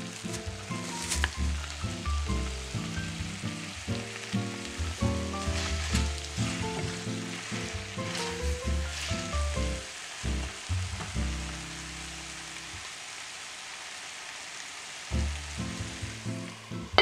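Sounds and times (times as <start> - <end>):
soft background music: 0.0 - 10.5
noodles sizzling in a pan: 0.0 - 17.0
spatula scraping a pan: 4.8 - 9.8.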